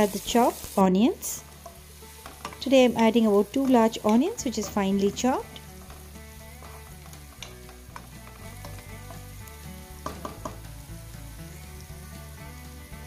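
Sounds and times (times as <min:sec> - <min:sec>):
onions sizzling in oil: 0:00.0 - 0:13.0
stirring knocks: 0:03.5 - 0:09.3, 0:10.0 - 0:10.7.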